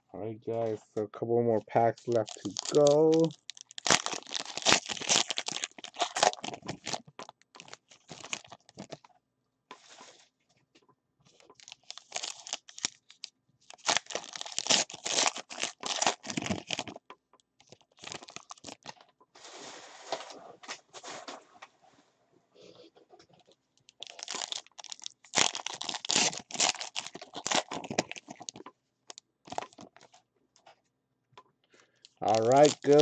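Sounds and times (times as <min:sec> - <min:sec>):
wrappers torn and crinkled: 0:01.8 - 0:09.1, 0:11.6 - 0:17.0, 0:17.6 - 0:19.0, 0:23.8 - 0:30.2, 0:32.2 - 0:33.0.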